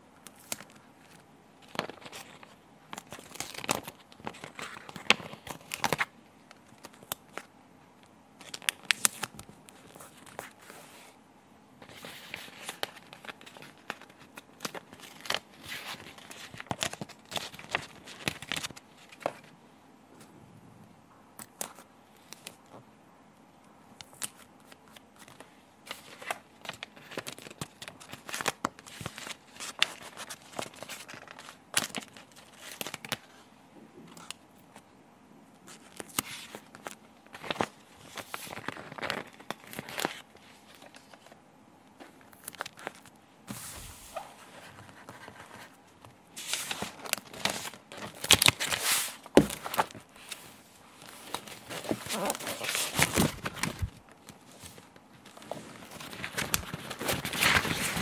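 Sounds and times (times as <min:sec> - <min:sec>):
sheet crinkling: 0:42.0 - 0:58.0.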